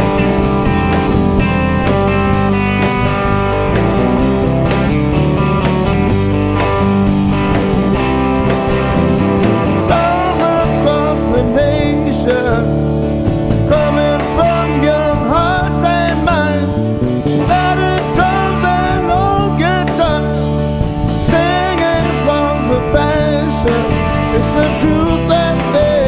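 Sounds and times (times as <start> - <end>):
rock band playing live: 0.0 - 26.0
male lead vocal singing: 9.8 - 12.8, 13.6 - 16.8, 17.4 - 20.4, 21.2 - 26.0.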